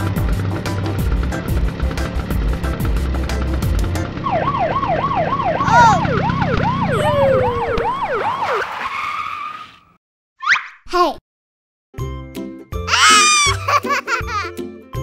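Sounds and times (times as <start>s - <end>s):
police siren wailing: 4.2s - 8.9s
short rising siren chirp: 4.2s - 9.8s.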